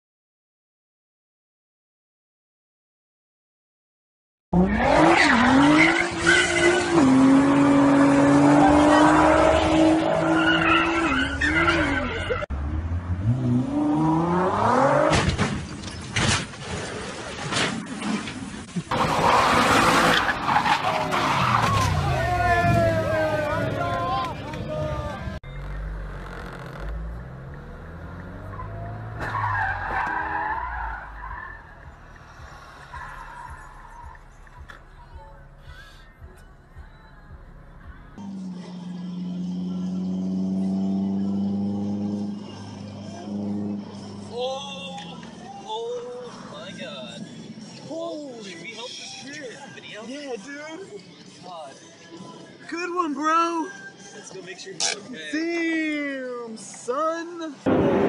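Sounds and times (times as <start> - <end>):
car engine revving: 4.6 - 15.3, 24.6 - 34.6, 37.7 - 44.3
tyres skidding and squealing: 4.6 - 16.6, 17.5 - 36.2
low vehicle hum: 21.7 - 44.4.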